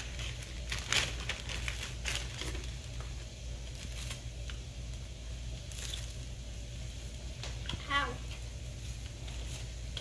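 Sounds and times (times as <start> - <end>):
plastic packaging crinkling: 0.0 - 6.5
steady low hum: 0.0 - 10.0.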